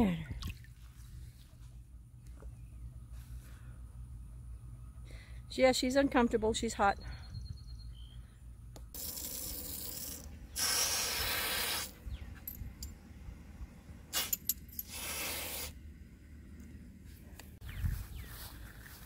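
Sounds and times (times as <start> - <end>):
water hissing through valve: 9.0 - 12.0, 14.2 - 15.8.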